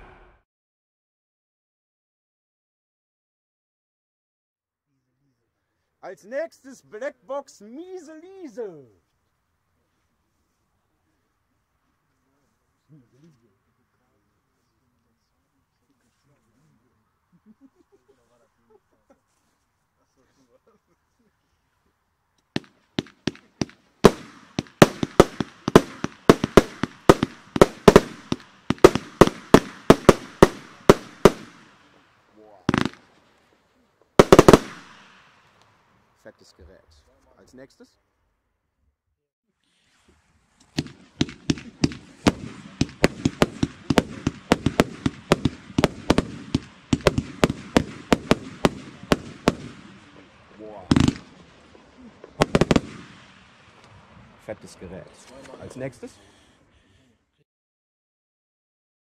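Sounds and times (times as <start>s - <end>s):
firework shots: 0.0s - 0.4s, 22.4s - 33.6s, 34.2s - 35.9s, 39.7s - 56.0s
sharp firework reports: 0.0s - 0.4s, 22.6s - 33.5s, 34.2s - 35.6s, 39.7s - 56.5s
firework hiss: 22.6s - 33.5s, 34.2s - 35.6s, 39.6s - 56.6s.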